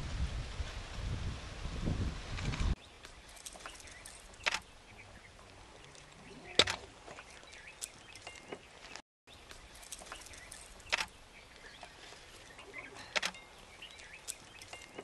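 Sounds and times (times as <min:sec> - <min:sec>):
sharp clicks: 0:03.6 - 0:04.7, 0:10.9 - 0:11.1, 0:13.1 - 0:13.4.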